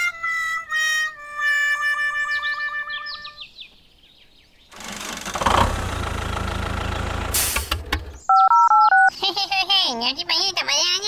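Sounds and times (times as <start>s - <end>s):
tractor engine rumbling: 4.7s - 9.1s
short hiss: 7.2s - 7.9s
two-tone electronic beeps: 8.3s - 9.1s.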